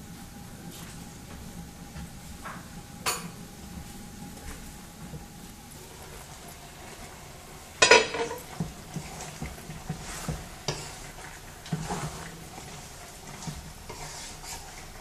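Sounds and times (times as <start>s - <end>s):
wooden spoon scraping metal pot: 5.8s - 15.0s
metal pot lid clanking: 7.8s - 8.4s.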